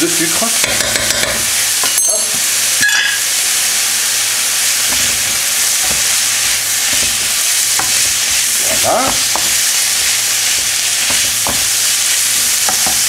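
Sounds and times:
food sizzling in a wok: 0:00.0 - 0:13.0
spatulas knocking and scraping pan: 0:00.6 - 0:03.2, 0:04.8 - 0:13.0.

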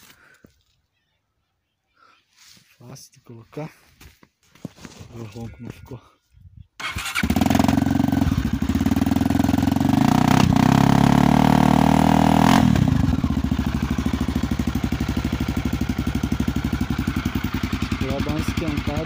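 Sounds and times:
dirt bike engine idling: 0:07.1 - 0:19.0.

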